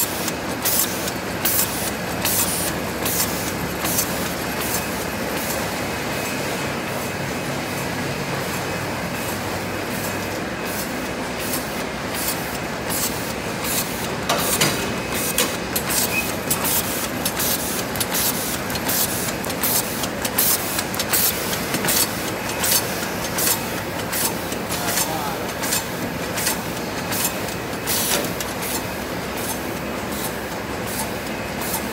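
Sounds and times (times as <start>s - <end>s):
bag making machine hissing strokes: 10.7s - 31.9s.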